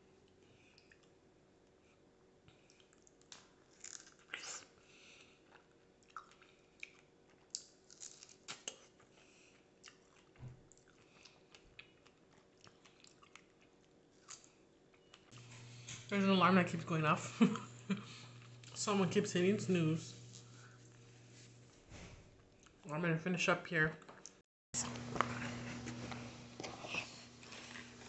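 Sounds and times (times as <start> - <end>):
person chewing strawberry: 0.3 - 1.8, 2.5 - 16.0, 24.8 - 28.0.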